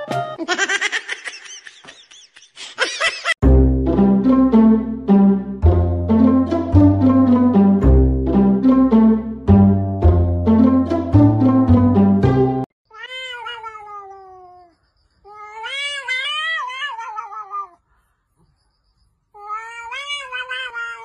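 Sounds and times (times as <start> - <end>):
plucked-string music: 3.4 - 12.7
cat yowling: 12.9 - 14.7, 15.3 - 17.8, 19.4 - 21.0.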